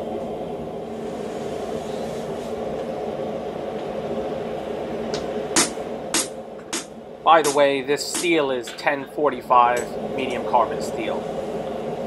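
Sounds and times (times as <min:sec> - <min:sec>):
forge humming: 0:00.0 - 0:12.0.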